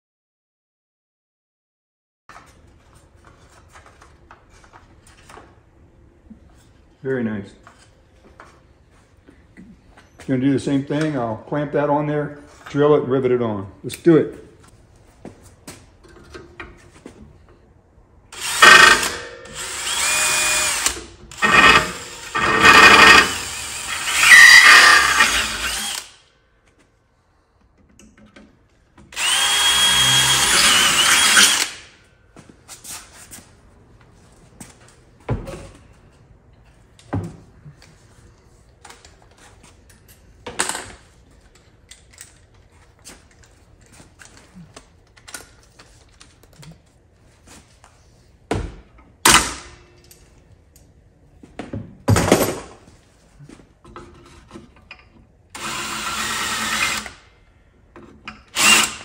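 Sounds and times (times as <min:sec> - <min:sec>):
cordless drill whining: 0:18.4 - 0:26.1, 0:29.2 - 0:31.8, 0:55.6 - 0:57.2, 0:58.5 - 0:59.0.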